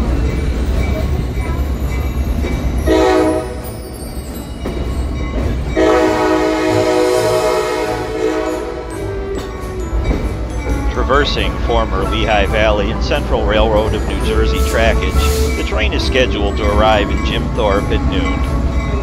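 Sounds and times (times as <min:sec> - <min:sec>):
low rumble of moving train: 0:00.0 - 0:19.0
locomotive horn blasts: 0:02.8 - 0:03.6, 0:05.8 - 0:09.2.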